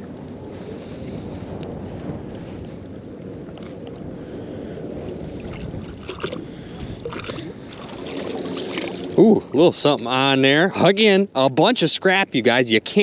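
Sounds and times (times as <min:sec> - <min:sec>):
wind on microphone: 0:00.0 - 0:10.8
small waves lapping: 0:03.5 - 0:10.3
water splashes and drips: 0:05.4 - 0:09.3.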